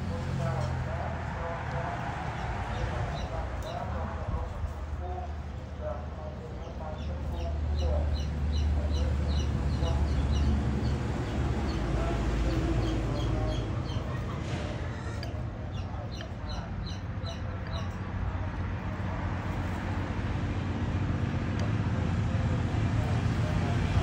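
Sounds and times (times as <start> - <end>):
bird chirping: 6.6 - 14.3
steady low rumble: 8.3 - 24.0.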